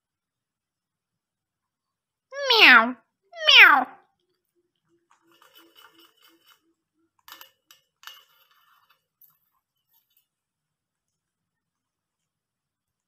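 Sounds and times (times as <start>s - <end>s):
parakeet meowing call: 3.4s - 3.9s.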